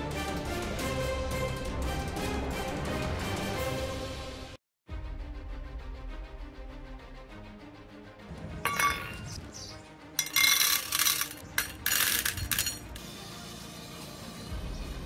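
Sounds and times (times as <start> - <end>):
background music: 0.0 - 15.0
pellets rattling into steel bowl: 8.7 - 9.2, 10.2 - 13.0
steel bowl clinking on metal: 8.7 - 9.4, 10.2 - 13.0.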